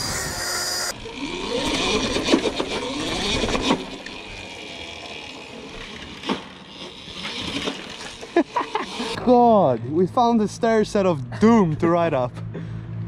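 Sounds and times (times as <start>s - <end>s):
electric motor whine: 0.0s - 9.2s.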